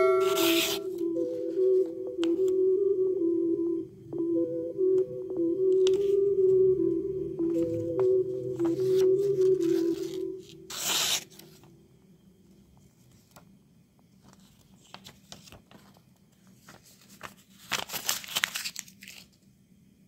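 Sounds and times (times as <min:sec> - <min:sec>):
faint paper rustles and ticks: 0:12.8 - 0:19.5
paper crumpled by hand: 0:14.2 - 0:19.4.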